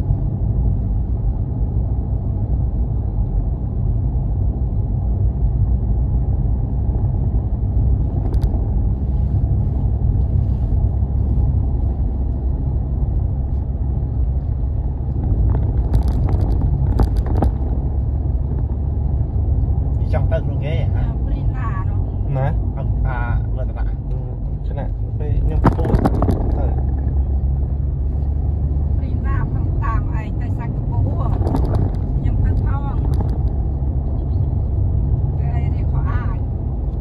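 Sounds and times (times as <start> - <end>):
car driving on dirt road: 0.0 - 37.0
sharp clicks and rattles: 15.0 - 17.8, 25.4 - 27.6, 30.9 - 34.0.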